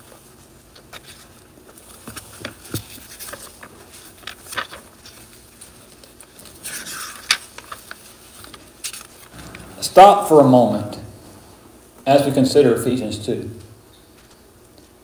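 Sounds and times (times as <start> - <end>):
paper pages rustling: 0.0 - 9.7.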